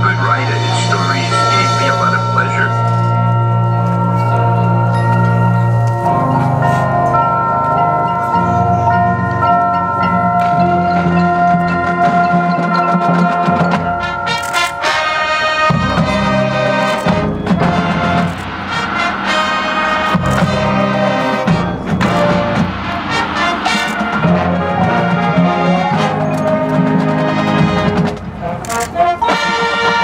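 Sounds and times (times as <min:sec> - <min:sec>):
marching band playing: 0:00.0 - 0:30.0
sharp percussion hits: 0:00.0 - 0:30.0.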